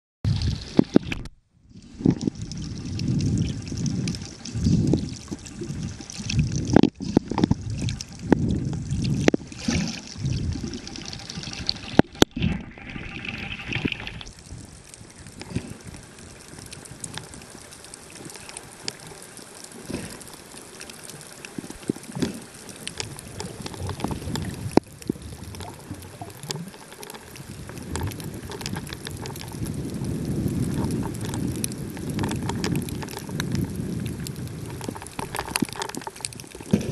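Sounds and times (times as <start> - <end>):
muffled underwater swishing: 0.3 - 19.1.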